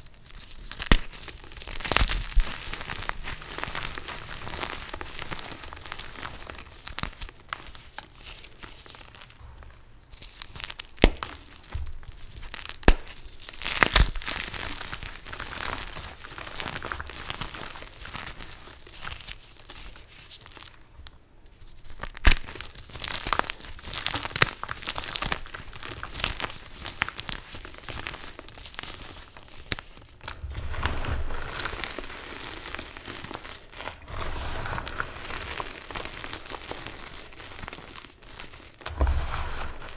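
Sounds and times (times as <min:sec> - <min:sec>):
chalk crunching and crumbling: 0:21.6 - 0:39.9.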